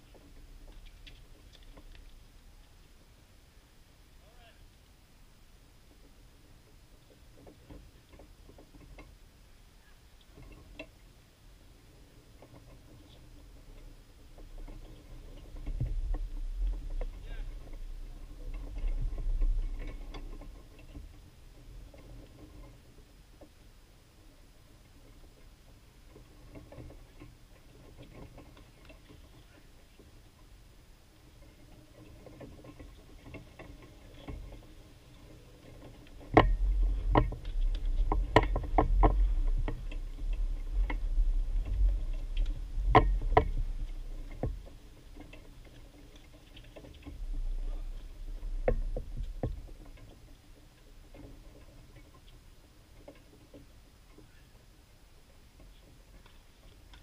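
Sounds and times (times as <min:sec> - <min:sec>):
low rumble: 0:15.5 - 0:20.5, 0:36.4 - 0:45.2, 0:47.0 - 0:51.1.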